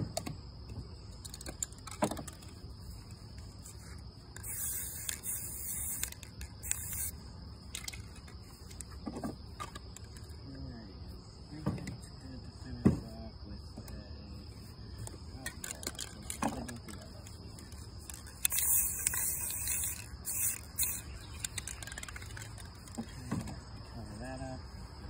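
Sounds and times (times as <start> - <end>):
crickets trilling: 0.0 - 25.0
aerosol spray can hissing: 4.4 - 7.2, 18.2 - 22.5.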